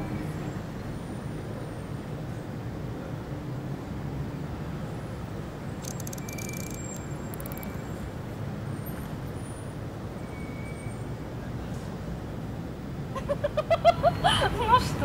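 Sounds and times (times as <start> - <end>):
faint fast high clicks: 5.8 - 8.0.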